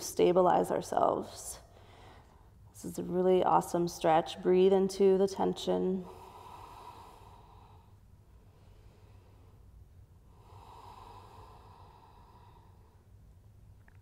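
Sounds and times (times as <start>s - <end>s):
low room hum: 0.0s - 14.0s
slow breathing: 1.6s - 2.6s, 6.0s - 13.2s.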